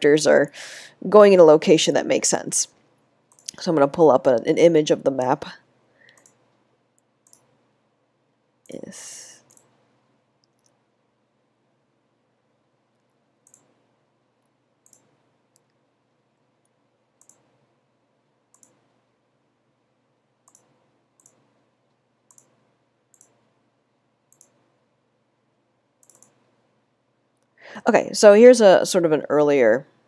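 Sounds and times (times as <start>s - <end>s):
faint computer mouse clicks: 6.0s - 6.4s, 7.0s - 7.5s, 9.4s - 9.8s, 13.4s - 13.7s, 14.8s - 15.8s, 16.6s - 17.5s, 18.5s - 18.8s, 20.5s - 21.4s, 22.3s - 23.4s, 24.3s - 24.6s, 26.0s - 26.4s.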